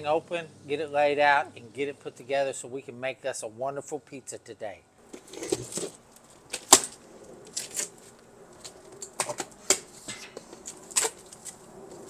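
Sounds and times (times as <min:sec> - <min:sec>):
cardboard flaps scraping and crackling: 0:05.1 - 0:12.0.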